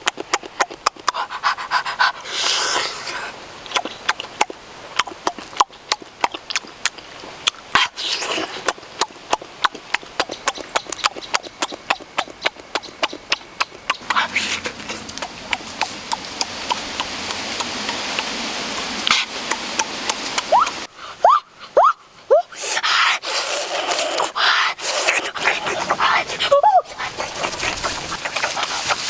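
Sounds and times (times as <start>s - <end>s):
wet lip smacks and chewing: 0.0s - 2.6s, 3.6s - 20.5s, 23.8s - 29.0s
breathy slurps: 0.4s - 10.0s, 13.6s - 18.3s, 22.5s - 29.0s.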